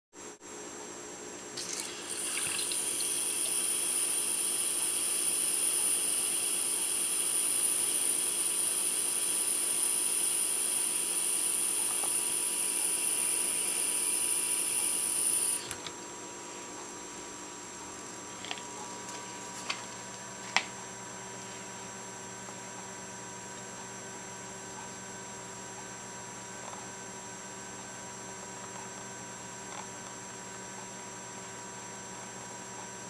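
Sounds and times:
beer pouring from a tap: 0:01.6 - 0:03.9.

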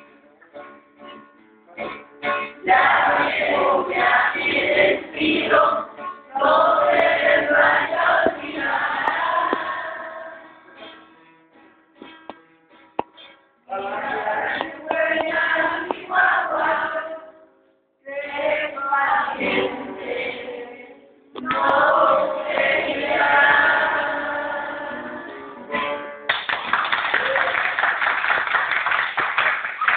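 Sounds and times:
children singing in chorus: 0:02.6 - 0:10.4, 0:13.7 - 0:17.3, 0:18.1 - 0:25.4
applause: 0:26.3 - 0:29.9.

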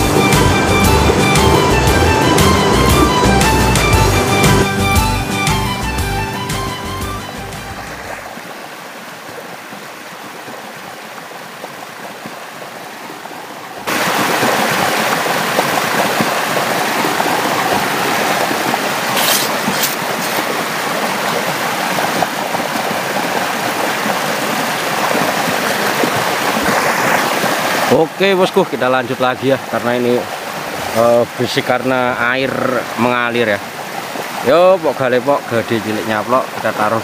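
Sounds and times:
stream water rushing: 0:00.0 - 0:37.0
high hissy water spatters: 0:13.9 - 0:28.7.

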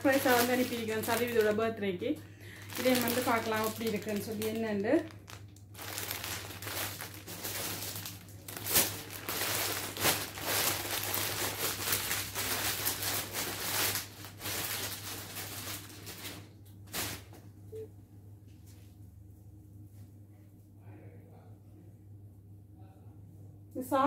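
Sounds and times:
plastic bag crinkling: 0:00.0 - 0:17.4.

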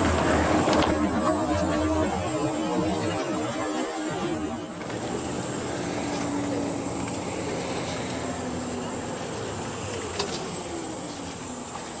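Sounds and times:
rear axle whine: 0:00.0 - 0:12.0
diesel engine: 0:04.6 - 0:12.0
road rumble: 0:04.8 - 0:12.0.

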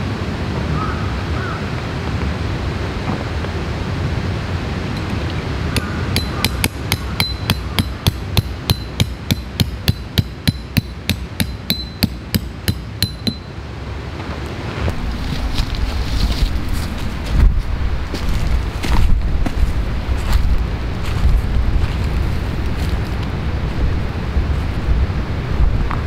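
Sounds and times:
hammer striking metal tent peg: 0:05.8 - 0:13.5.

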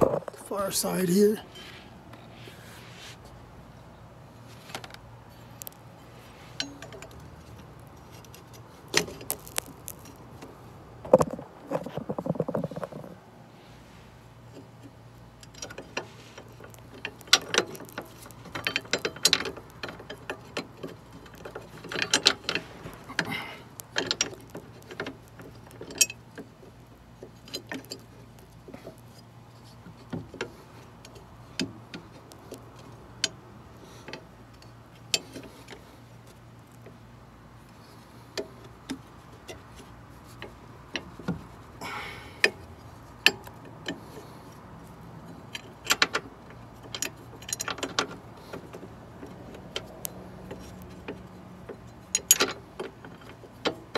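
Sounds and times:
metal bolts clicking: 0:45.2 - 0:53.9.

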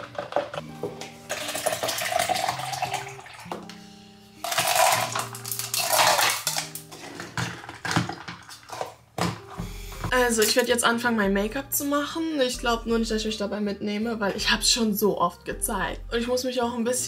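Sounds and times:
soft background music: 0:00.0 - 0:17.0
ice cubes rattling in cup: 0:04.4 - 0:08.9.

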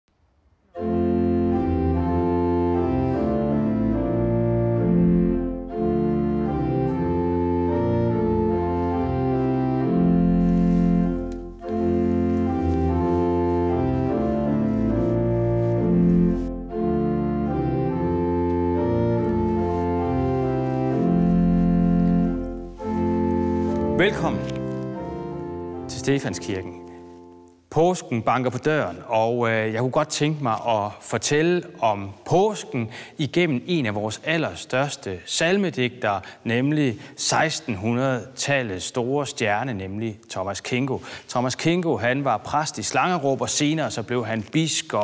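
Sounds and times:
organ chords: 0:00.7 - 0:27.8.

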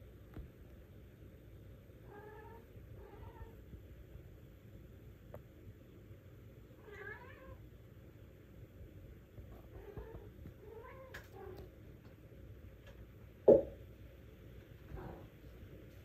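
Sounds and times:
cat meowing: 0:06.8 - 0:07.6, 0:09.6 - 0:11.7.

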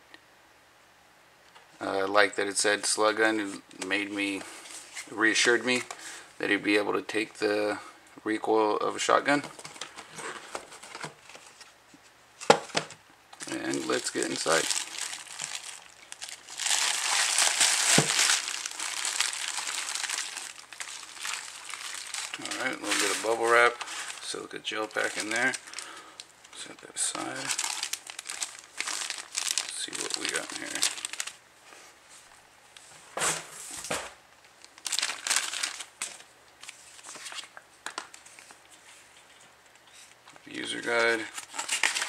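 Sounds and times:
bubble wrap crinkling: 0:13.4 - 0:31.4, 0:34.5 - 0:39.0, 0:39.8 - 0:42.0.

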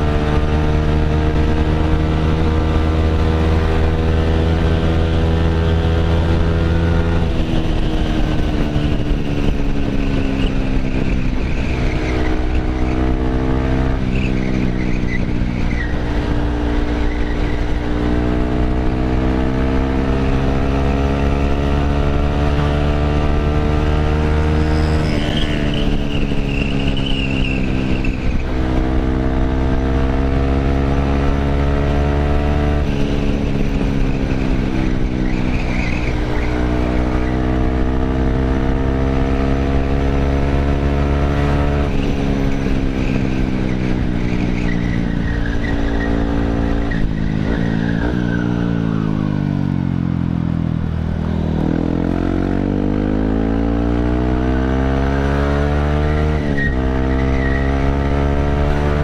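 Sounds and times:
motorcycle engine accelerating: 0:00.0 - 0:59.0
rushing wind: 0:00.0 - 0:59.0.

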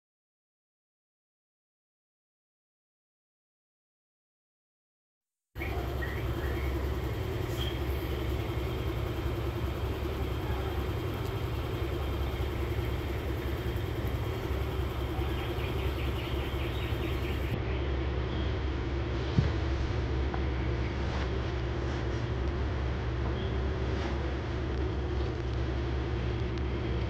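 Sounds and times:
faint steady hum: 0:05.6 - 0:27.0
low vehicle rumble: 0:05.6 - 0:27.0.

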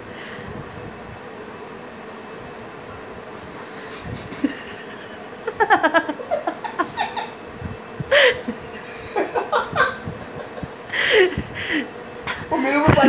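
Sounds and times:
man and baby laughing: 0:05.4 - 0:07.4, 0:08.1 - 0:10.7.

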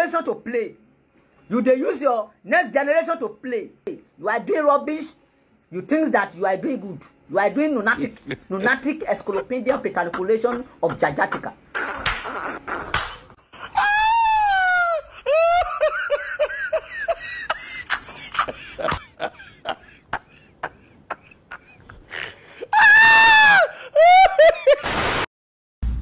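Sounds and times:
short choppy cries: 0:10.1 - 0:14.3
person screaming: 0:13.6 - 0:15.7, 0:22.2 - 0:24.5.

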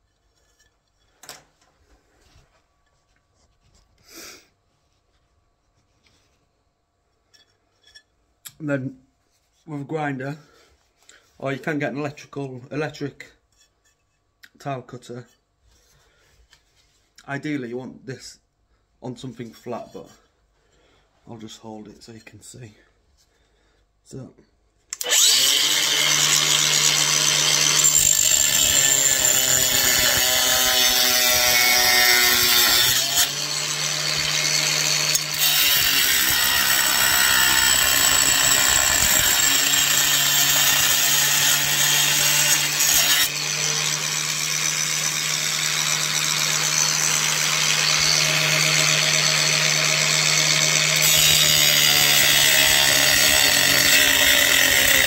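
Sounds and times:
angle grinder cutting tile: 0:25.0 - 0:55.0.

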